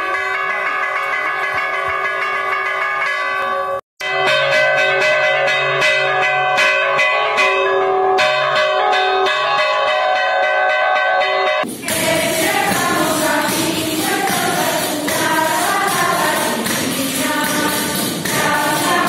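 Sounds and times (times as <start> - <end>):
church bell ringing: 0.0 - 12.7.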